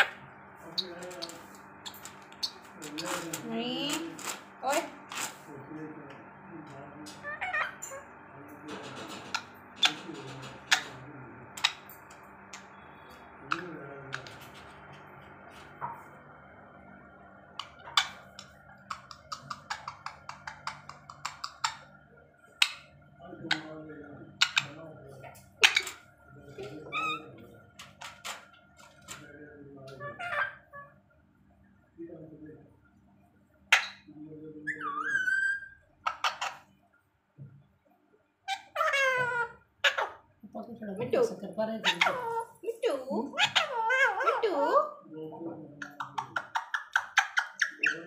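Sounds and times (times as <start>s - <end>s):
parakeet calling: 0.0s - 5.3s, 7.1s - 8.2s, 9.3s - 14.9s, 17.6s - 23.8s, 25.5s - 29.2s, 30.0s - 31.0s, 33.7s - 36.7s, 38.4s - 40.3s, 41.8s - 44.8s, 45.8s - 48.0s.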